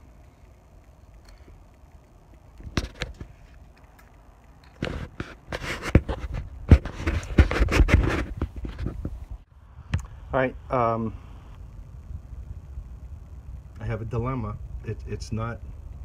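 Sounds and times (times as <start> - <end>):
clicks and scraping: 0.2 - 10.1.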